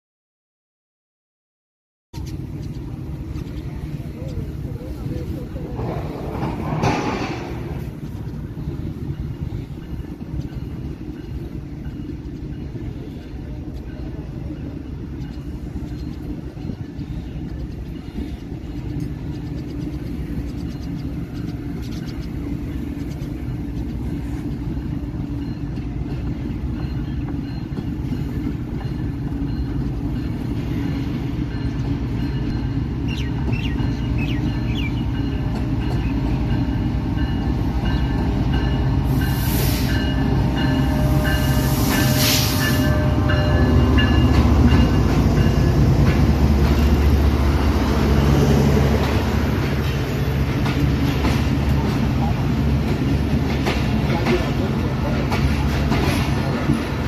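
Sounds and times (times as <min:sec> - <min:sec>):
train rumbling: 0:02.2 - 0:57.0
train horn blasts: 0:39.0 - 0:45.7.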